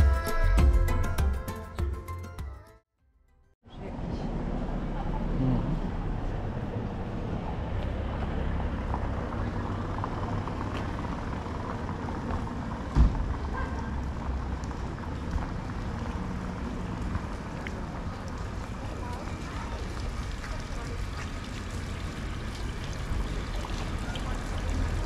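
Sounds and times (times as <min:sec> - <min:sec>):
town traffic rumble: 0:03.6 - 0:25.0
sharp thump: 0:12.9 - 0:13.3.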